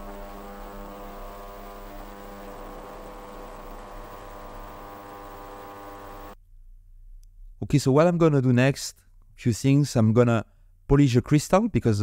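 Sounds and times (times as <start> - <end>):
ultrasonic cleaner humming: 0.0 - 6.4.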